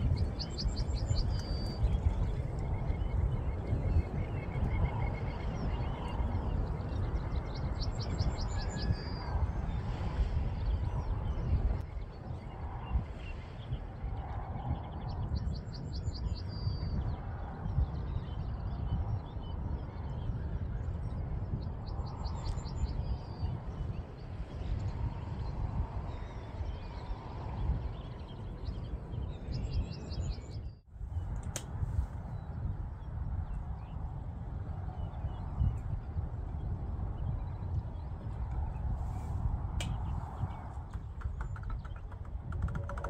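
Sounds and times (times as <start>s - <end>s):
wind rumble on microphone: 0.0s - 43.0s.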